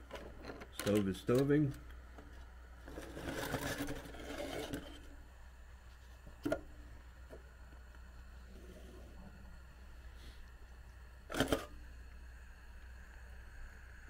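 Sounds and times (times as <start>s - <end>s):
low steady hum: 0.0s - 14.0s
frying pan scraping and rattling: 2.9s - 5.0s.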